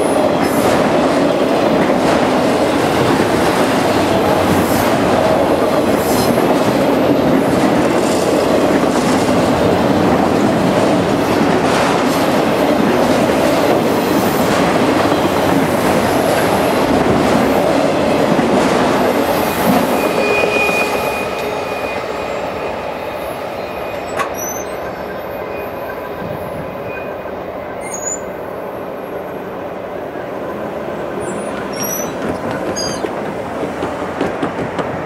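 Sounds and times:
train wheels rumbling and clacking: 0.0 - 35.0
wheel squeal: 19.8 - 22.5, 23.6 - 26.0, 27.8 - 28.3, 31.2 - 33.1.

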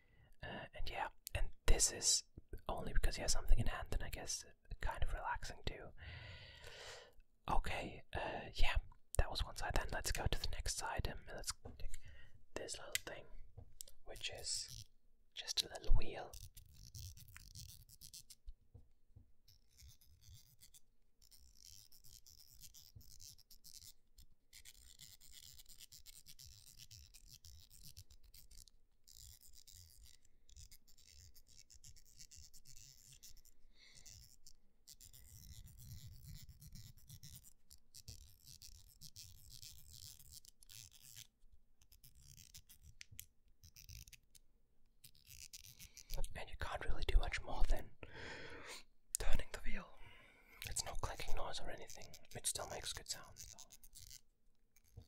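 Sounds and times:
fingers rubbing on plastic cube: 13.8 - 18.6, 19.4 - 44.4, 45.0 - 47.8, 50.6 - 55.0
scratchy clicking of small wheel: 16.3 - 18.4, 19.5 - 44.4, 45.0 - 46.2, 50.6 - 55.0.

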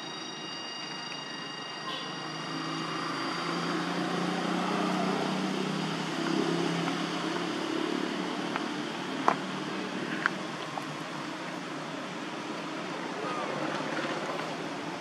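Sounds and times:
low hum: 0.0 - 15.0.

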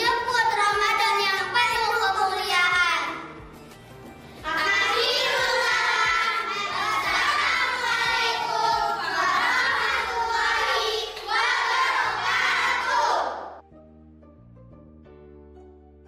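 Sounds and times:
backing music track: 2.7 - 13.1
children singing: 4.4 - 13.6.

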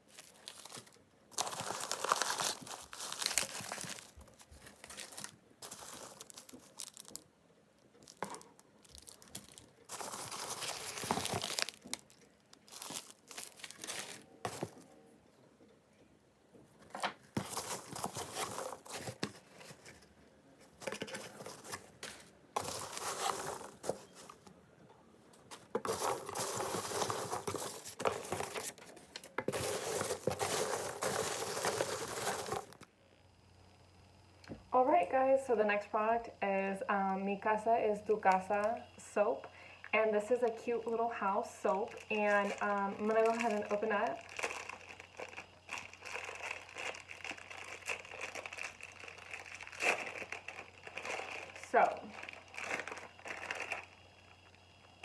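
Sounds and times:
paper bags crinkling: 0.0 - 7.3, 8.0 - 14.9, 16.8 - 20.1, 20.7 - 24.5, 25.5 - 32.8, 40.4 - 54.3
packing peanuts rustling: 0.0 - 14.9, 17.2 - 20.1, 20.7 - 24.5, 25.5 - 32.9, 40.3 - 54.6.

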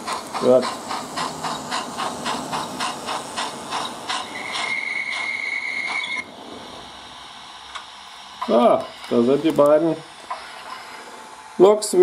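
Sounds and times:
steam locomotive chuffing: 0.0 - 12.0
steam whistle: 4.4 - 6.2.

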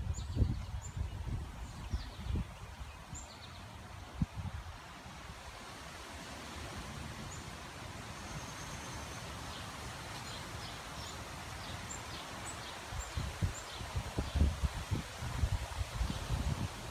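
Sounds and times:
wind buffeting microphone: 0.0 - 3.3, 12.9 - 16.9
wind rustling tree leaves: 0.0 - 16.9
small birds chirping: 0.1 - 3.9, 8.2 - 14.5.

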